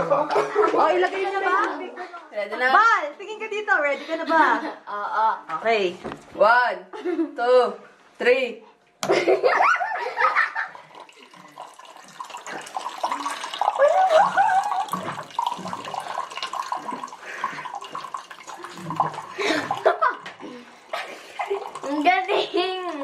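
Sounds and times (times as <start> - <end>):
water pouring into a glass: 10.6 - 22.6.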